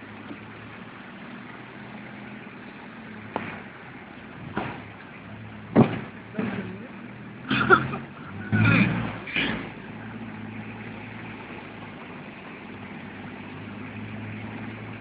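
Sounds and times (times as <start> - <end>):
car engine humming: 0.0 - 15.0
rain and water on street: 0.0 - 15.0.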